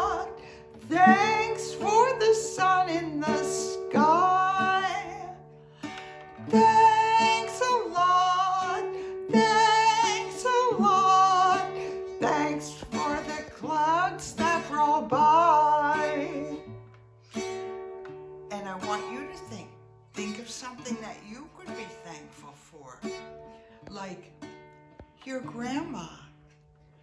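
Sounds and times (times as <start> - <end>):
woman singing: 0.0 - 16.8, 18.5 - 23.2
classical guitar: 0.0 - 27.0.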